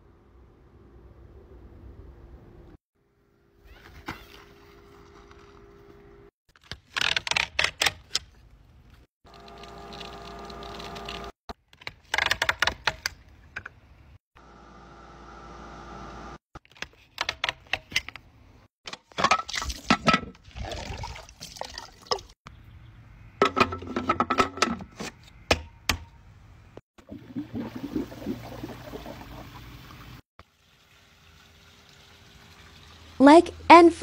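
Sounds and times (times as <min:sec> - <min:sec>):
pump motor humming: 0:09.3 - 0:11.3
water pouring and splashing: 0:19.3 - 0:22.4, 0:27.0 - 0:33.2.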